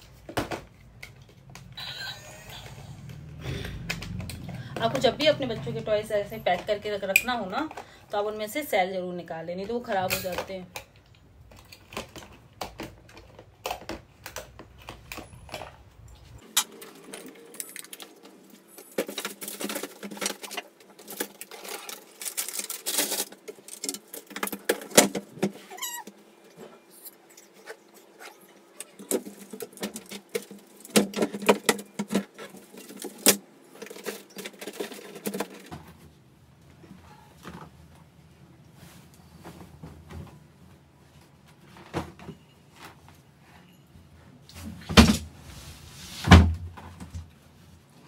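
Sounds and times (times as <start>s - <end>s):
toys knocking and rattling: 16.4s - 26.2s, 28.8s - 36.0s.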